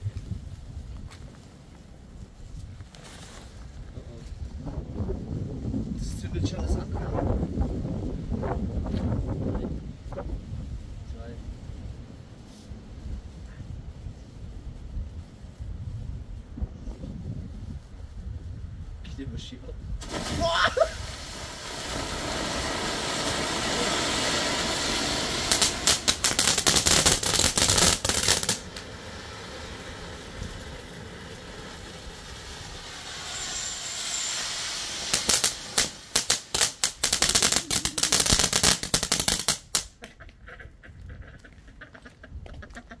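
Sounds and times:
firework fountains hissing: 18.9s - 39.9s
rapid crackling: 20.0s - 40.0s.

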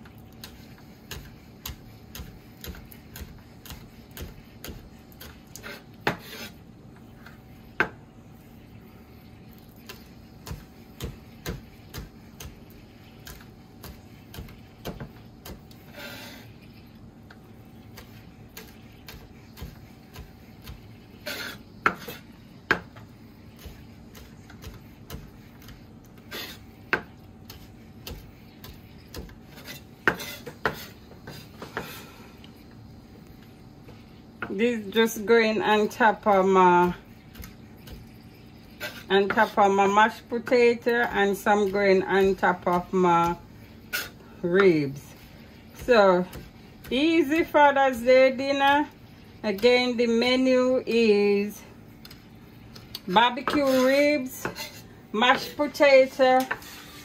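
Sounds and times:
faint steady hum: 0.0s - 57.0s
knife chopping on cutting board: 0.4s - 6.5s, 9.9s - 16.4s, 18.0s - 32.0s, 53.4s - 55.6s.

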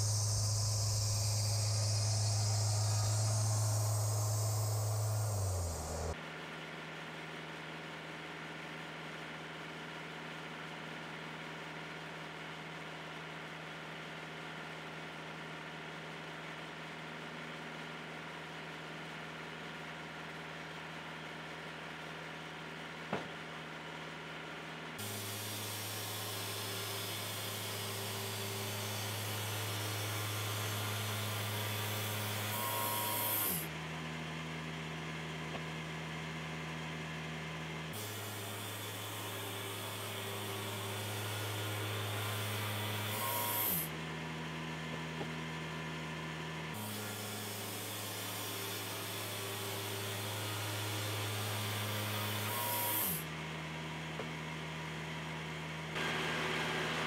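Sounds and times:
sawmill engine running: 0.0s - 6.2s, 25.0s - 33.8s, 38.0s - 43.9s, 46.8s - 53.2s.

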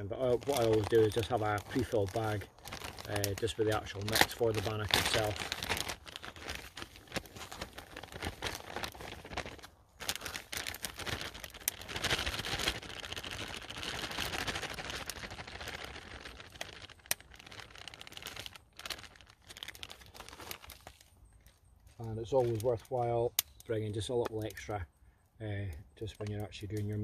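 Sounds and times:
plastic bag crinkling: 0.0s - 24.7s.

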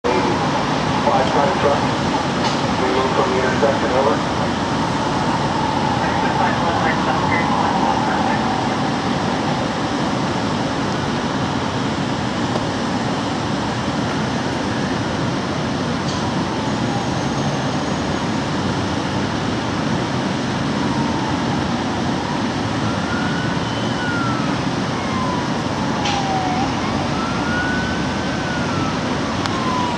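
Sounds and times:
city noise: 0.0s - 29.9s
distant wailing siren: 0.0s - 29.9s.

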